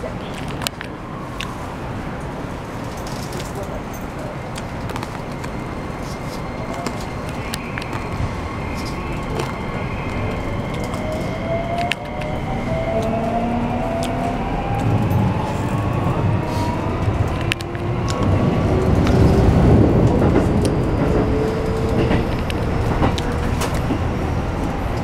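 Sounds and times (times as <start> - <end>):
wheels rumbling on rail: 0.0 - 25.0.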